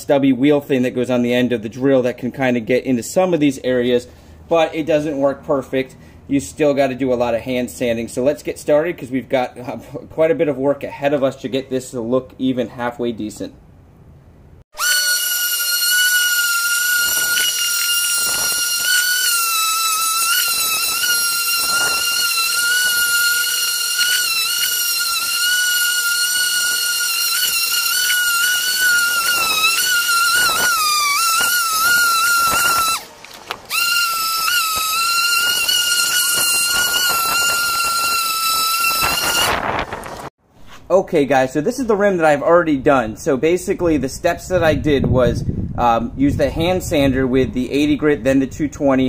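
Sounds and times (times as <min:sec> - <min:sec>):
orbital sander whining: 0:14.7 - 0:40.3
sanding pad scuffing: 0:34.7 - 0:40.9.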